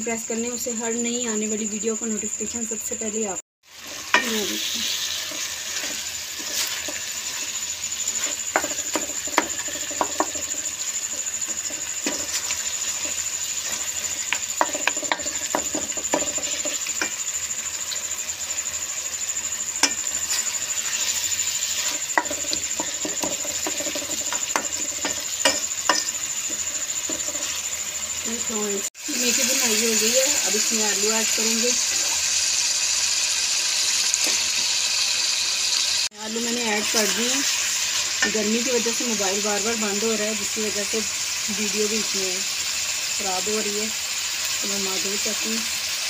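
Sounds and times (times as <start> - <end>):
meat sizzling in hot oil: 3.6 - 46.0
spatula scraping and knocking pan: 3.8 - 17.3, 19.7 - 27.9.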